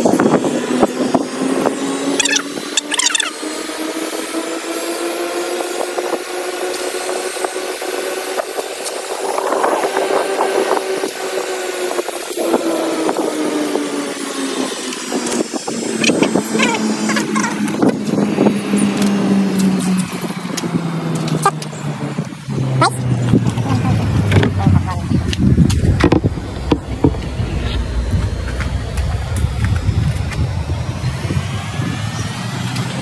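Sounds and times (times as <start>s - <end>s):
electric hair clippers buzzing: 0.0s - 23.1s.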